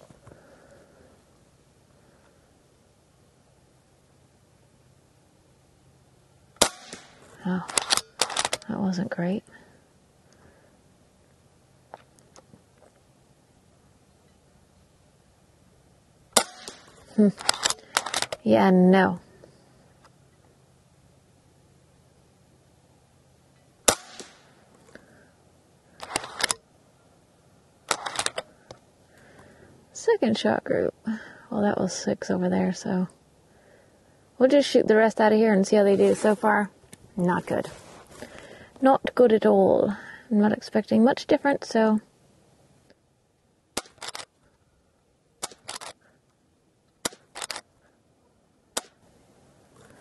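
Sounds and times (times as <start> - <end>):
air rifle shot crack: 6.6 - 8.6, 16.4 - 18.4, 23.8 - 24.6
metallic clicks of rifle action: 6.6 - 8.7, 16.4 - 18.5, 26.0 - 26.6, 27.9 - 28.8, 43.8 - 44.4, 45.4 - 46.1, 46.9 - 47.7.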